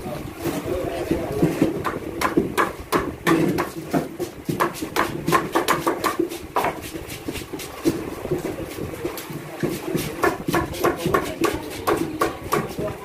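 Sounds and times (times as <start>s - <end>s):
fish chopped on blades: 1.8s - 8.0s, 9.2s - 13.0s.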